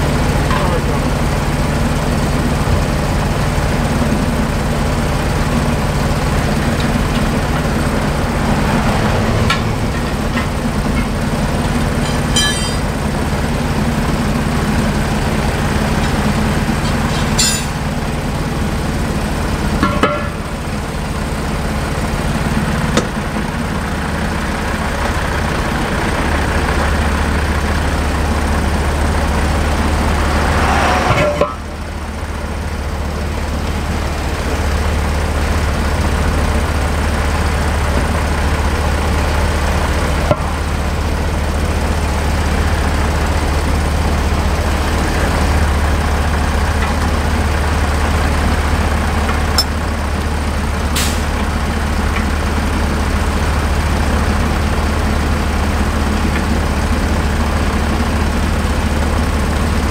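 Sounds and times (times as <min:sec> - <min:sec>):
approaching vehicle engine rumble: 0:00.0 - 0:59.9
diesel truck engine idling: 0:00.0 - 0:59.9
sharp metal clinks: 0:12.0 - 0:12.9, 0:17.2 - 0:17.8.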